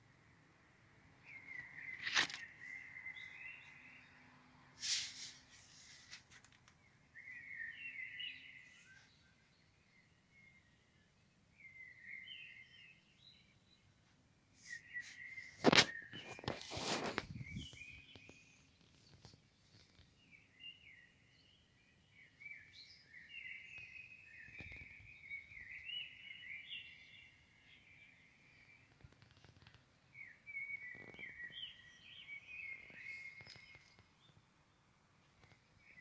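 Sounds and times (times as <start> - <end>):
outdoor background noise: 0.0 - 36.0
phone brushing against leaves: 1.8 - 2.8, 4.8 - 6.5, 14.7 - 18.2.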